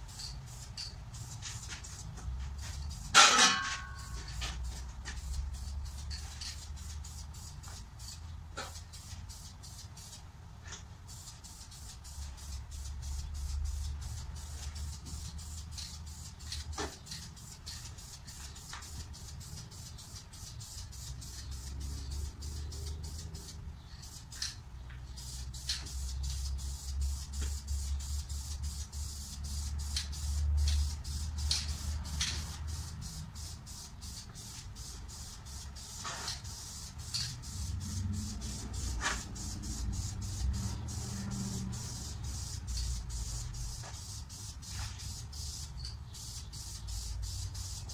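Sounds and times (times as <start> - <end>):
spray can hissing: 4.6 - 10.2, 11.1 - 24.5, 25.1 - 47.9.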